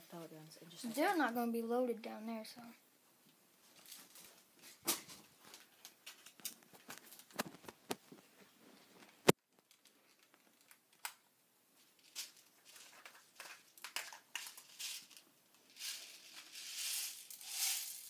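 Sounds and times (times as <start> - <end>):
rustling: 3.6 - 10.8, 11.7 - 18.0
pellets rattling: 12.0 - 18.0.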